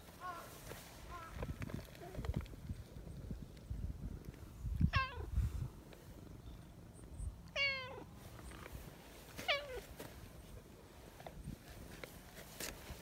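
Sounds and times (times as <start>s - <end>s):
cat meowing: 7.6s - 8.1s.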